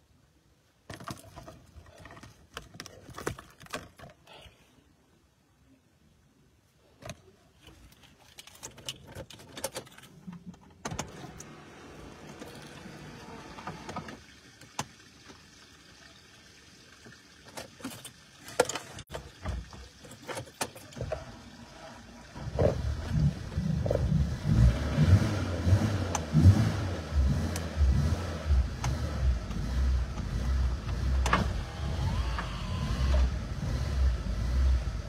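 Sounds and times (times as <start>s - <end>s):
phone handling clicks and rustles: 0.9s - 4.3s, 7.0s - 11.1s.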